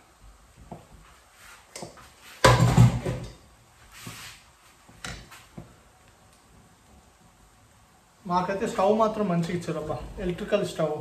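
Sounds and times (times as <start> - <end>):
kitchen items clattering: 2.4 - 3.4.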